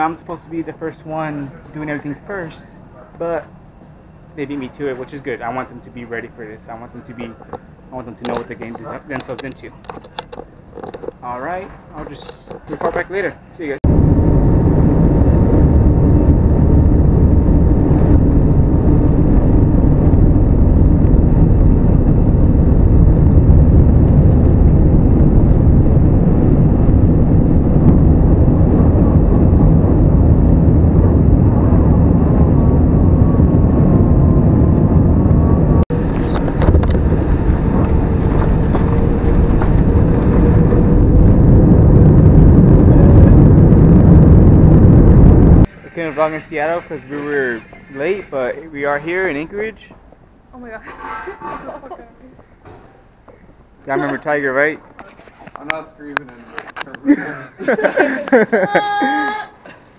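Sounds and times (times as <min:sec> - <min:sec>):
steady cabin drone: 0:11.7 - 0:49.8
jet engines roaring in cabin: 0:13.8 - 0:45.8.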